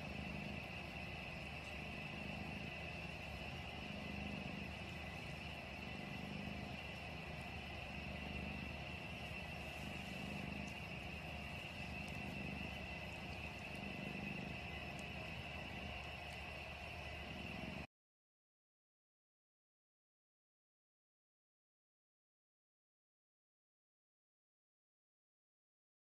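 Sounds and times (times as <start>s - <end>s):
cat purring: 0.0s - 17.9s
faint steady hiss: 0.0s - 17.9s.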